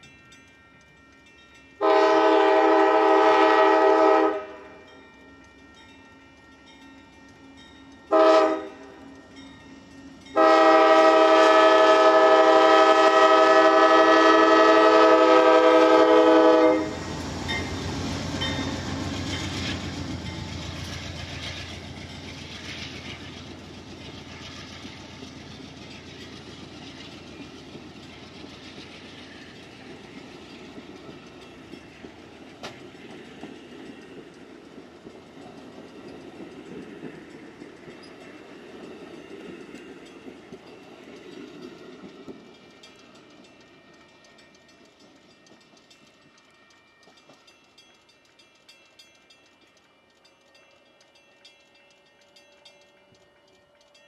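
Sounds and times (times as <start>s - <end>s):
train cars rolling past: 0.0s - 54.0s
wheels clacking over rails: 15.4s - 48.2s.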